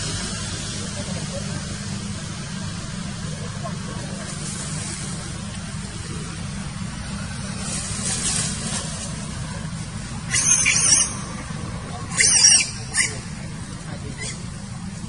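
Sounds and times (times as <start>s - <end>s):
steady low rumble: 0.0s - 10.3s, 11.1s - 12.1s
monkey squealing: 10.3s - 13.4s, 14.1s - 14.5s.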